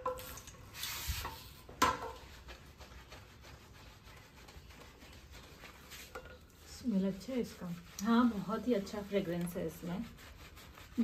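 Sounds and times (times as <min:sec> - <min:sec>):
hands rubbing lather through hair: 0:00.2 - 0:11.0
short hiss: 0:00.3 - 0:01.4.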